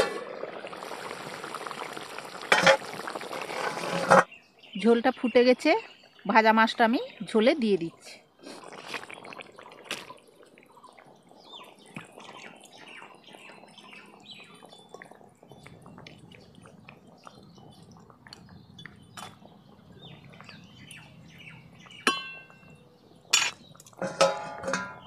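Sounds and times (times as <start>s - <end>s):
gravy bubbling: 0.0s - 4.8s, 6.2s - 25.0s
lid knocking against pan: 23.4s - 25.0s.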